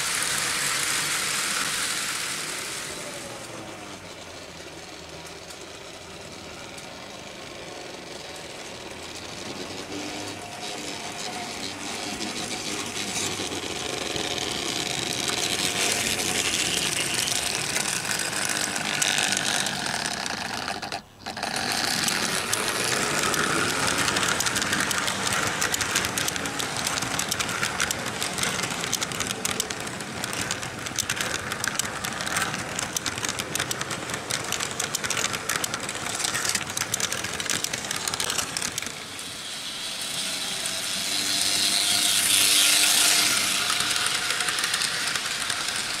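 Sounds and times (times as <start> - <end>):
model train wheels clicking on rails: 0.0 - 46.0
electric motors whirring: 9.4 - 46.0.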